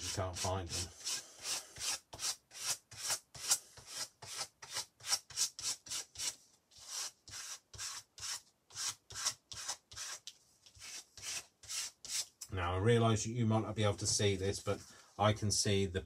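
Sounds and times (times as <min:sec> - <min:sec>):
glue stick rubbing on paper: 0:00.0 - 0:12.4.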